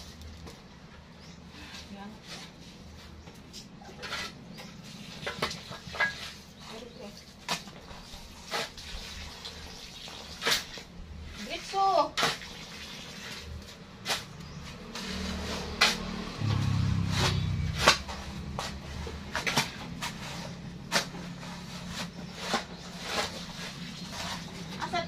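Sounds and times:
digging tools scraping sandy soil: 1.2 - 16.4, 17.1 - 25.0.

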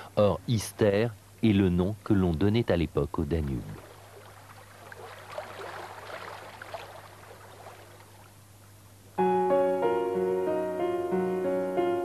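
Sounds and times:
faint trickling water: 3.3 - 8.9
piano-like keyboard chords: 9.2 - 12.0.

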